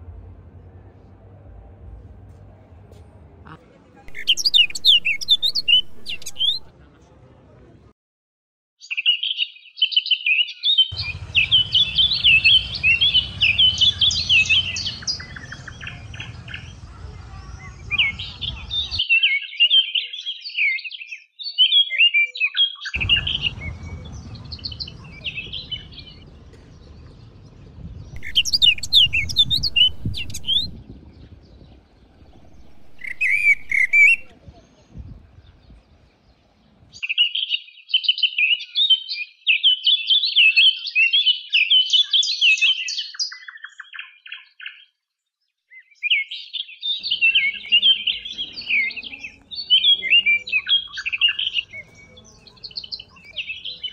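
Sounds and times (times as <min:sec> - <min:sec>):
high sweeping bird calls: 0:04.1 - 0:06.7, 0:08.8 - 0:44.9, 0:45.7 - 0:53.9
small birds chirping: 0:04.1 - 0:06.7, 0:08.8 - 0:53.9
low background rumble: 0:23.0 - 0:37.0.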